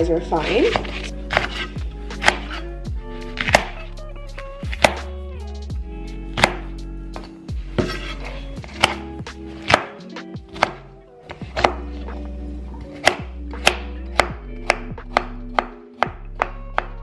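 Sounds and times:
soft background music: 0:00.0 - 0:17.0
knife chopping on cutting board: 0:00.4 - 0:02.6, 0:03.4 - 0:03.9, 0:04.6 - 0:05.1, 0:06.3 - 0:12.0, 0:12.8 - 0:17.0.

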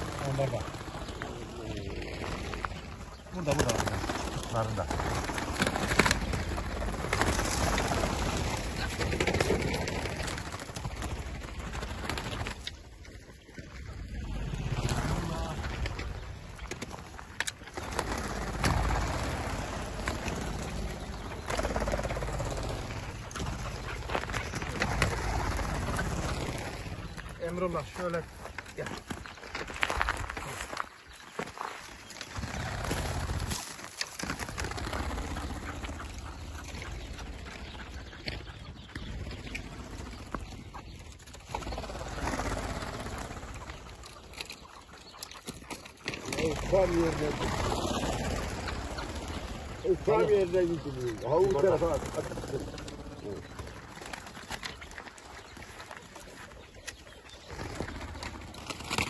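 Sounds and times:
partridges calling: 0:34.5 - 0:59.0.

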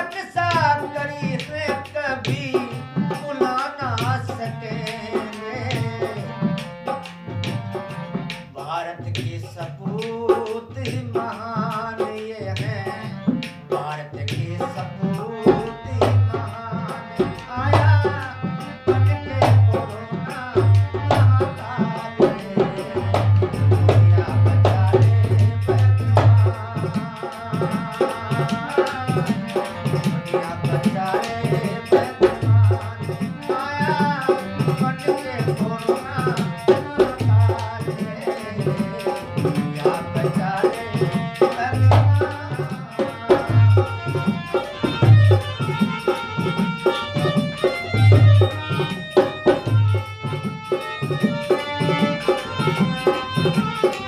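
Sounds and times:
harmonium devotional melody: 0:00.0 - 0:54.0.

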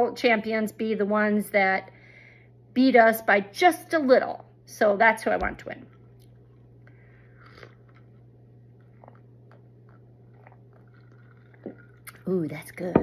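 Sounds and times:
low electrical hum: 0:00.0 - 0:13.0
sips and swallows: 0:07.2 - 0:12.2.

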